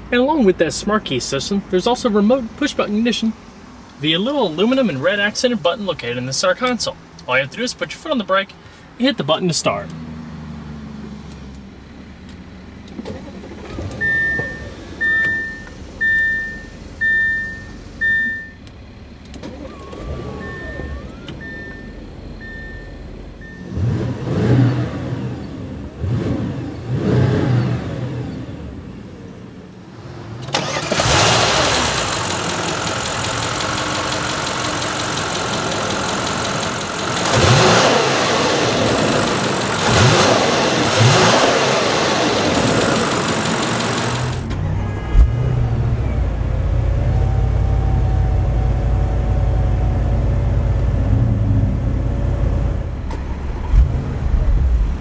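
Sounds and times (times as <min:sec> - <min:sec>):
car engine idling and revving: 0:00.0 - 0:55.0
dashboard chime beeping: 0:14.0 - 0:18.6, 0:20.4 - 0:23.6
rush of engine noise: 0:30.1 - 0:55.0.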